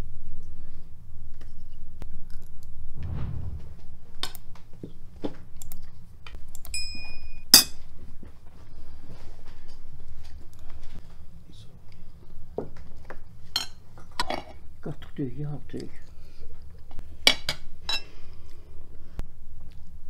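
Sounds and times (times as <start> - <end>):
steady low rumble: 2.9 - 4.3.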